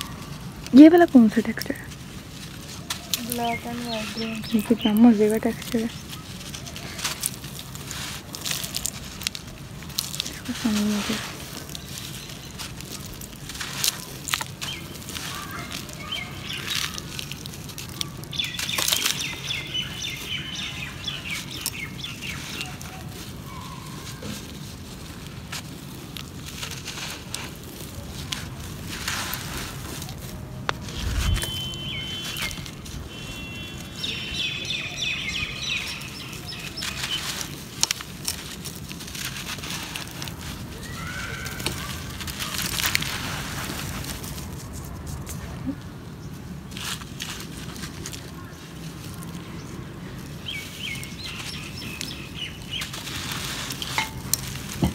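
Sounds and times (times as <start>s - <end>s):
falling grains trickling: 0.0s - 23.6s
falling sand grains hissing: 0.0s - 45.4s, 46.4s - 54.9s
hands crunching dry sand: 0.0s - 54.9s
birds chirping: 2.6s - 9.3s, 10.1s - 24.4s, 30.8s - 37.6s, 47.8s - 54.3s.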